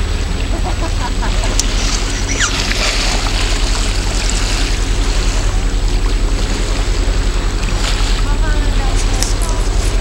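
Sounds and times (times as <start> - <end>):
boat motor drone: 0.0 - 10.0
water rushing along hull: 0.0 - 10.0.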